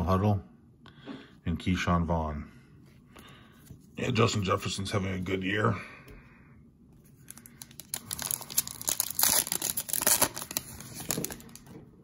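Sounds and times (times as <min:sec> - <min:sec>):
plastic wrapper tearing and crinkling: 0:07.2 - 0:11.7.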